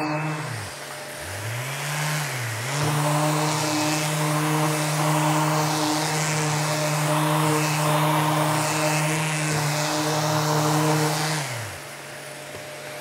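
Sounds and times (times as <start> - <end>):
electric sander sanding wood: 0.0 - 13.0.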